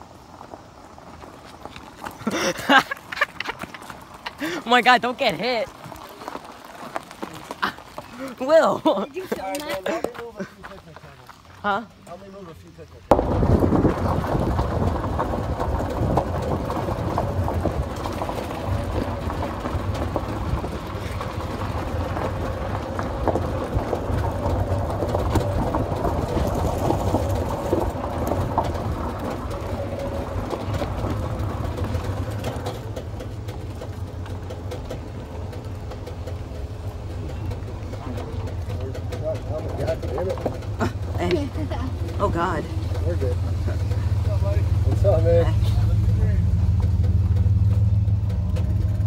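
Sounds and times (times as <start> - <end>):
golf cart running rumble: 0.0 - 49.0
road noise: 0.0 - 49.0
small rattles: 13.1 - 49.0.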